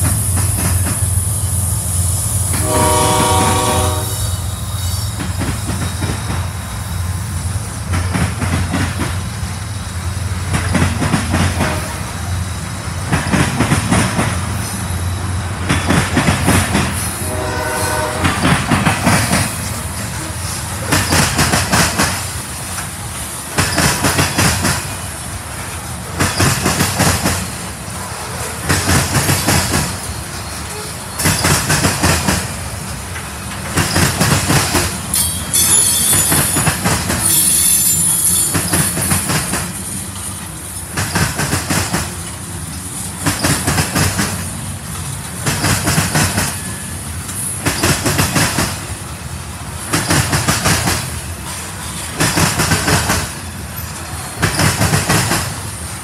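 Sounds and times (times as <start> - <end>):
train wheels clacking over rail joints: 0.0 - 1.5, 2.4 - 56.0
diesel locomotive engine droning: 0.0 - 56.0
train horn: 2.5 - 4.5, 11.6 - 12.3, 17.1 - 18.6.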